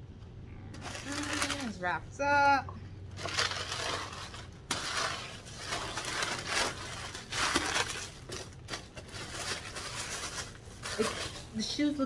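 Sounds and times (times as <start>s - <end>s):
tissue paper rustling and crinkling: 0.8s - 1.8s, 3.2s - 12.0s.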